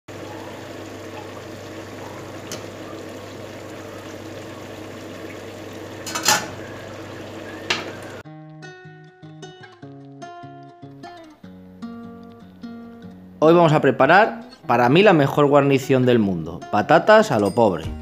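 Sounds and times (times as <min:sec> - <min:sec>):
vegetables bubbling in oil: 0:00.1 - 0:08.2
metal lid clanking onto pan: 0:06.0 - 0:06.7.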